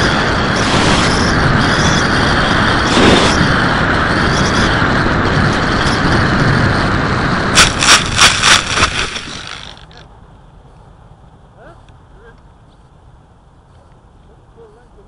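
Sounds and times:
wind rush: 0:00.0 - 0:09.8
electric motor whine: 0:00.0 - 0:10.0.

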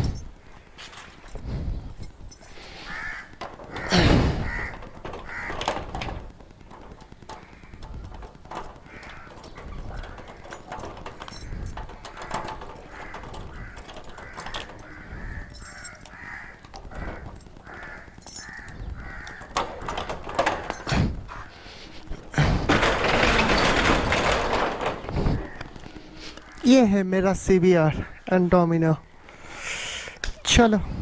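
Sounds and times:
keys and padlock jangling: 0:00.0 - 0:03.0, 0:05.8 - 0:21.3
rolling shutter rattling up: 0:00.0 - 0:28.1
bird calling: 0:11.9 - 0:22.1.

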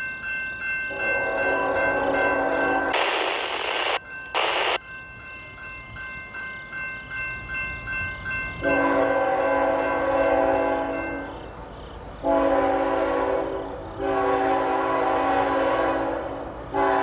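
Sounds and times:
crossing bell ringing: 0:00.0 - 0:17.0
train horn chord: 0:00.9 - 0:03.0, 0:08.6 - 0:17.0.

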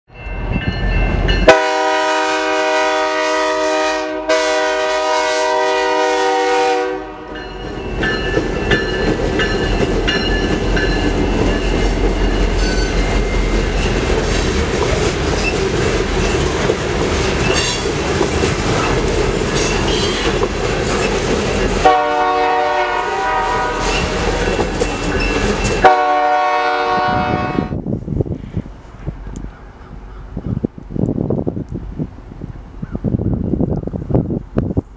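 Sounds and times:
locomotive horn: 0:01.4 - 0:07.5, 0:21.8 - 0:24.4, 0:25.8 - 0:27.8
freight cars rumbling and clattering: 0:07.7 - 0:21.9, 0:23.8 - 0:25.8.

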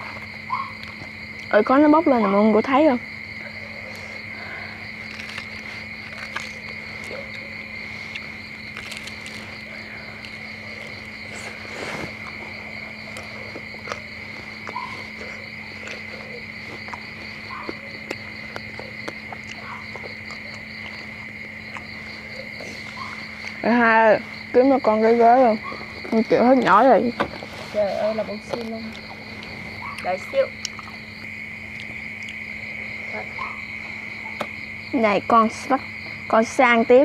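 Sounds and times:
eating clicks and crunches: 0:00.0 - 0:01.6, 0:03.0 - 0:23.6, 0:28.3 - 0:34.8
crickets chirping: 0:00.0 - 0:37.0.

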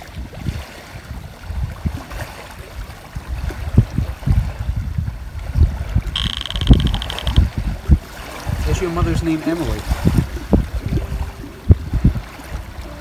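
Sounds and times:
wind buffeting microphone: 0:00.0 - 0:13.0
rapid high electronic beeping: 0:06.2 - 0:07.4.

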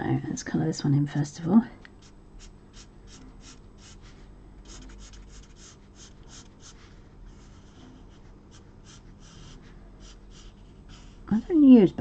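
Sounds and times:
felt marker rubbing on card: 0:02.0 - 0:11.3.

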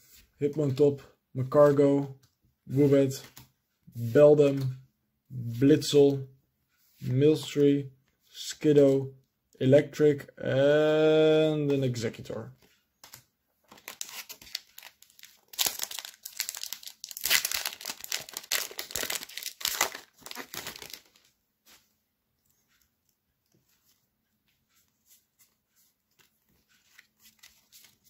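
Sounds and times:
foil wrapper tearing and crinkling: 0:13.7 - 0:21.2.

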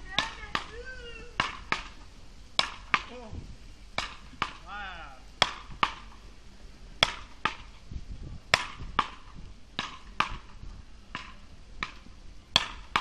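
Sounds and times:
wooden paddles hitting ball: 0:00.2 - 0:00.8, 0:01.4 - 0:03.2, 0:04.0 - 0:04.7, 0:05.4 - 0:06.2, 0:07.0 - 0:07.8, 0:08.5 - 0:13.0.

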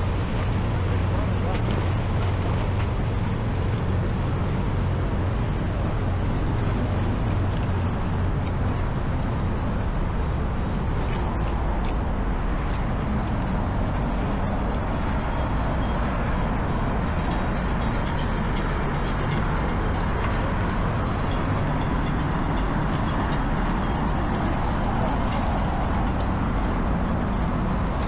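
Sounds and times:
city traffic rumble: 0:00.0 - 0:28.0.

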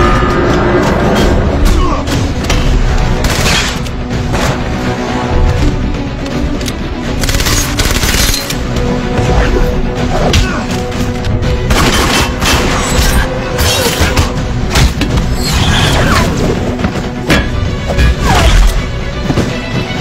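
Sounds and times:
action movie music score: 0:00.0 - 0:20.0.

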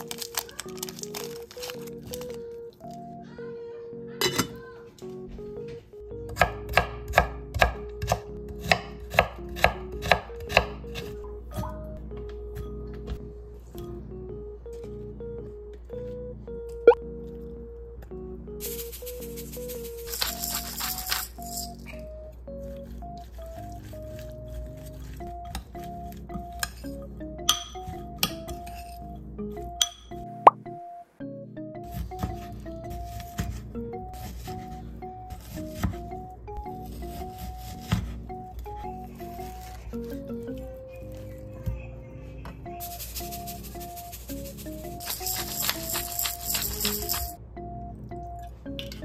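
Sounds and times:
background music: 0:00.0 - 0:49.0
knife chopping on cutting board: 0:06.3 - 0:11.2
spoon clinking in glass bowl: 0:20.1 - 0:21.8, 0:45.0 - 0:47.4.

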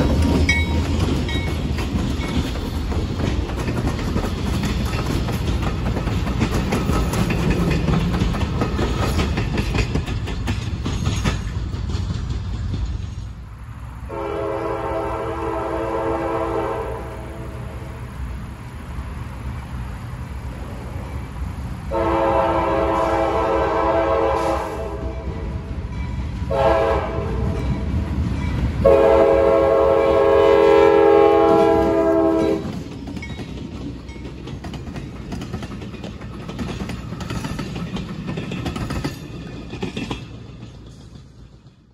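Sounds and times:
wheels clicking over rail joints: 0:00.0 - 0:13.5, 0:31.3 - 0:41.9
train rumbling past: 0:00.0 - 0:41.9
train air horn blasts: 0:14.1 - 0:17.9, 0:21.9 - 0:25.4, 0:26.5 - 0:27.6, 0:28.8 - 0:32.7.

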